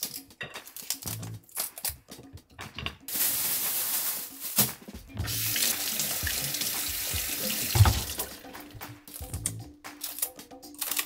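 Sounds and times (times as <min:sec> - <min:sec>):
tap running into steel sink: 0:05.2 - 0:08.4
knock: 0:07.7 - 0:08.2.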